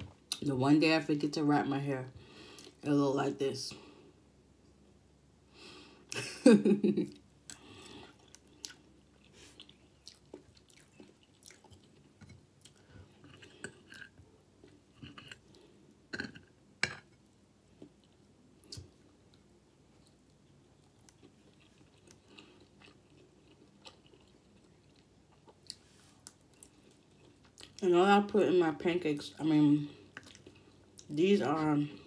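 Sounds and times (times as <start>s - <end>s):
chewing food: 7.1s - 15.8s, 17.7s - 27.8s, 29.2s - 31.2s.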